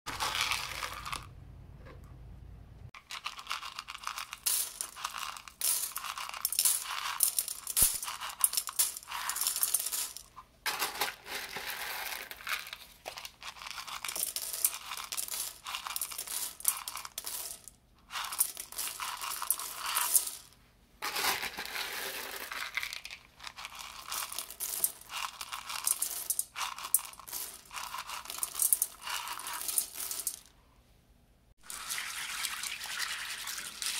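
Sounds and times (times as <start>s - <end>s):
dried beans pouring into metal pot: 0.1s - 1.3s, 3.0s - 12.7s, 23.7s - 30.4s, 31.6s - 33.9s.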